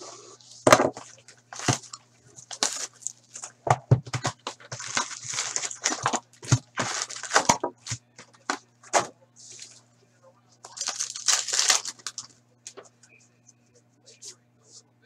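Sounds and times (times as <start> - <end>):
cardboard and plastic wrap crinkling: 0.5 - 8.6, 10.7 - 12.3.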